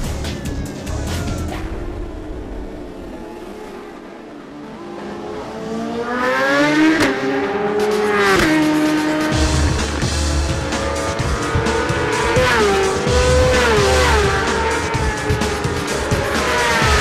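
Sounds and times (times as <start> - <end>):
music: 0.0 - 3.0, 7.5 - 17.0
racing motorcycle engines: 0.0 - 17.0.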